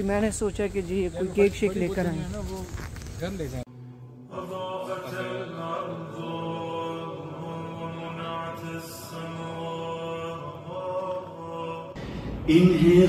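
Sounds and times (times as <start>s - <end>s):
man chanting: 11.4s - 13.0s.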